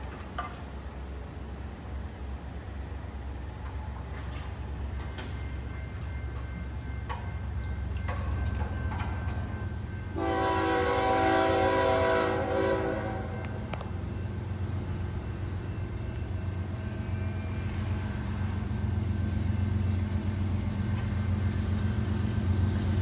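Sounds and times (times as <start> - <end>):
locomotive air horn chord: 10.1 - 13.8.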